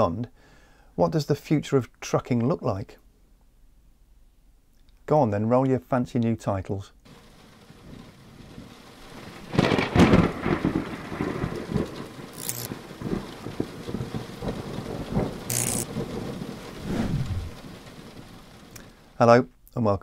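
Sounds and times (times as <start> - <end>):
rain: 7.0 - 19.2
rolling thunder rumbles: 7.6 - 18.7
thunder crash: 8.6 - 18.3.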